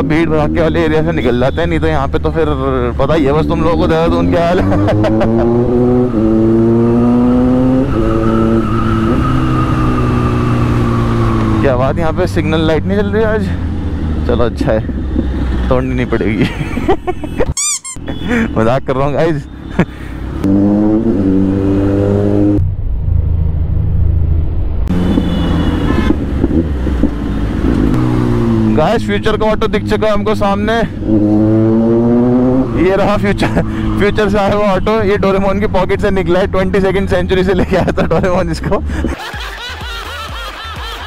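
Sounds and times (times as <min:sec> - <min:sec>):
motorcycle engine revving: 0:01.8 - 0:16.0, 0:20.3 - 0:24.3, 0:24.9 - 0:37.2.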